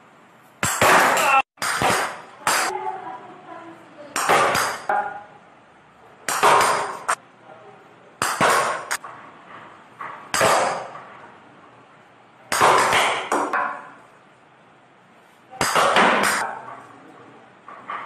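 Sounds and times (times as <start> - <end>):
plastic bat hitting ball: 0.6 - 2.7, 4.2 - 5.2, 6.3 - 7.2, 8.2 - 9.0, 10.3 - 11.0, 12.5 - 13.9, 15.6 - 16.7.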